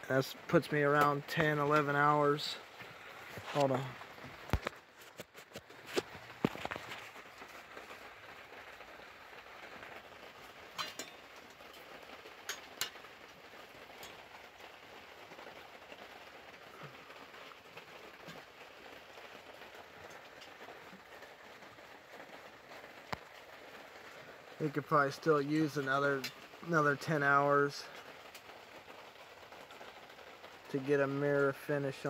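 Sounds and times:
faint background hiss: 0.0s - 32.0s.

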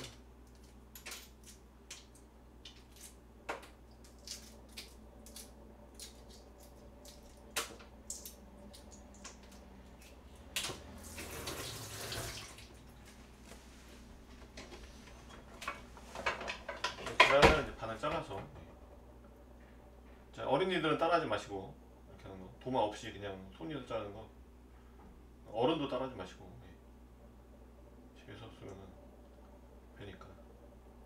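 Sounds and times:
water tap running: 10.9s - 12.8s.

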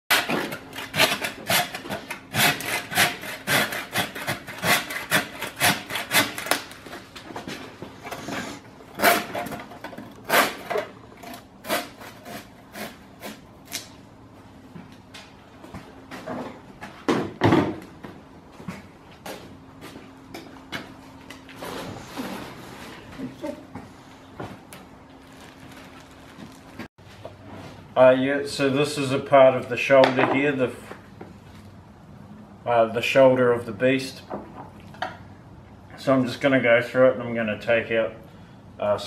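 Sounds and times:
hand saw rasping through bone: 0.1s - 6.6s, 8.1s - 9.6s, 10.2s - 13.8s.

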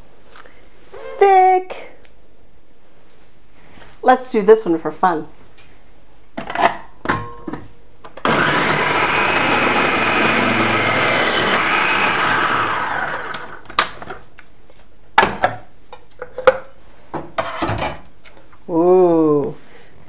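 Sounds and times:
food processor motor whining: 8.2s - 13.7s.

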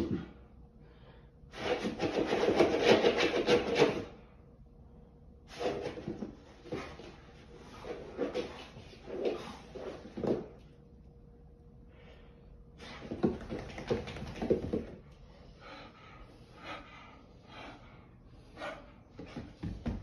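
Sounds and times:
dog rubbing and thumping on floor: 1.6s - 4.1s, 5.5s - 10.6s, 12.8s - 14.9s.

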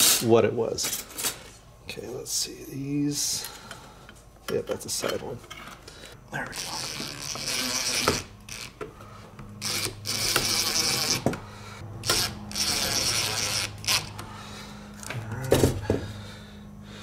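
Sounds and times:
impact driver driving screws: 6.7s - 8.7s, 9.6s - 11.4s, 12.0s - 14.2s.

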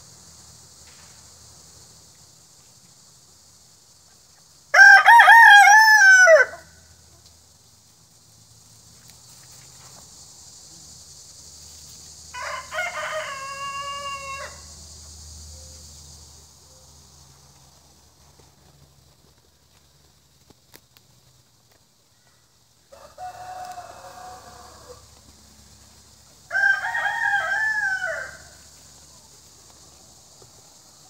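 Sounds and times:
rooster crowing: 4.7s - 6.8s, 12.3s - 14.8s, 22.9s - 25.2s, 26.4s - 28.8s.

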